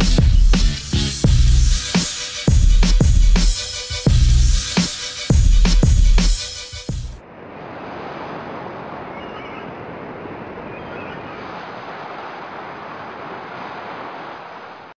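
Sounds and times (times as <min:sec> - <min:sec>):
ocean surf: 0:07.2 - 0:15.0
faint high chirps: 0:09.0 - 0:09.8.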